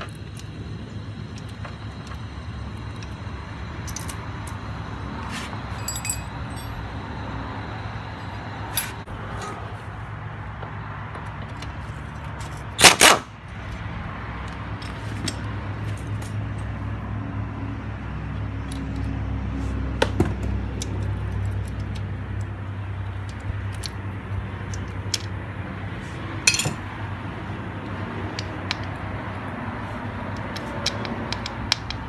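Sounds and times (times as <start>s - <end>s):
steady low hum: 0.0s - 10.8s
metal clicks and clinks: 5.7s - 6.8s, 26.4s - 26.8s, 30.4s - 32.0s.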